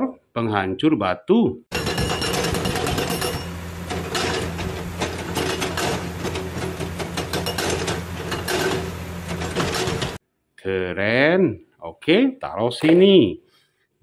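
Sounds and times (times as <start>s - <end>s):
hydraulic rock breaker hammering: 1.7s - 10.2s.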